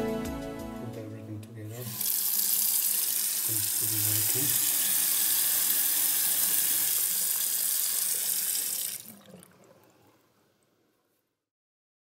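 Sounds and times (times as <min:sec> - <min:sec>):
faucet water running into sink: 0:01.8 - 0:10.2
water trickling into basin: 0:06.7 - 0:10.8.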